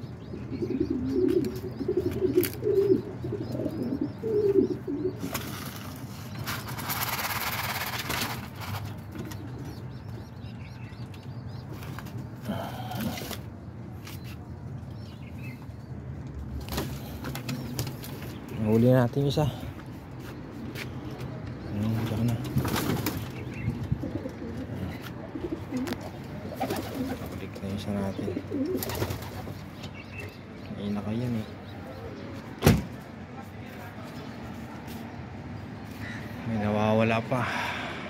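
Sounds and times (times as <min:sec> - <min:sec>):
pigeon cooing: 0:00.2 - 0:05.3, 0:24.0 - 0:27.4, 0:28.1 - 0:29.5.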